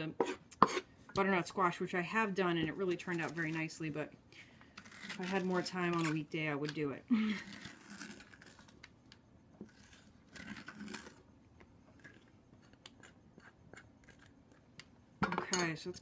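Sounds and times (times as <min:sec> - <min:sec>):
spoon scraping squash: 0:00.0 - 0:01.0, 0:02.6 - 0:04.0, 0:04.7 - 0:08.9, 0:09.6 - 0:15.0.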